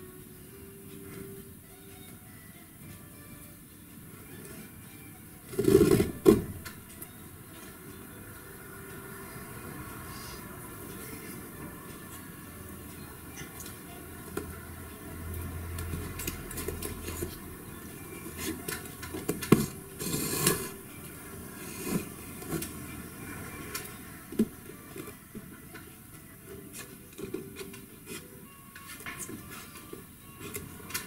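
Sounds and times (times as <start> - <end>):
rustling scrape: 19.6 - 20.8.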